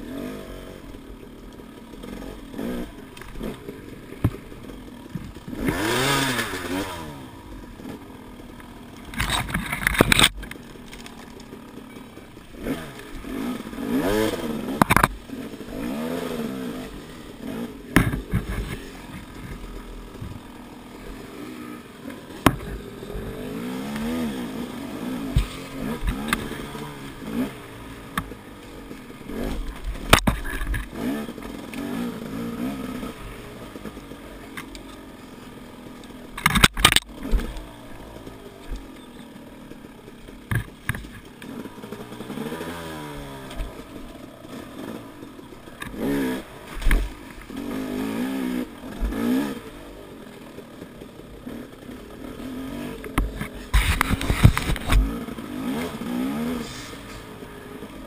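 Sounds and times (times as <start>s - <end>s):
dirt bike engine revving: 0.0s - 58.0s
sharp knocks and clatter: 14.8s - 15.2s, 17.9s - 20.4s, 22.2s - 23.3s, 29.4s - 31.6s, 40.4s - 41.6s, 53.0s - 56.0s.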